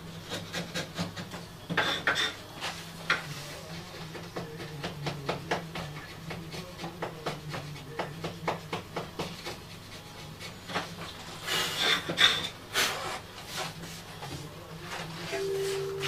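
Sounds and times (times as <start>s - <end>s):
steady low hum: 15.3s - 16.0s.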